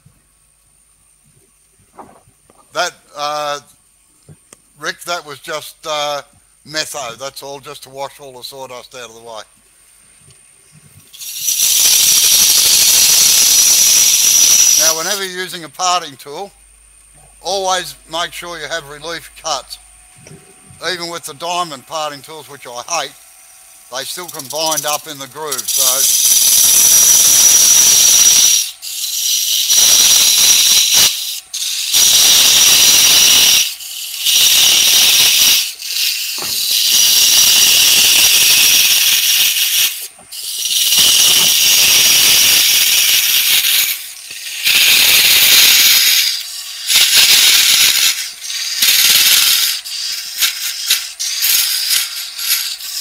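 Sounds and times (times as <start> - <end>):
parting tool cutting spinning wood: 11.1 - 16.5, 20.8 - 53.0.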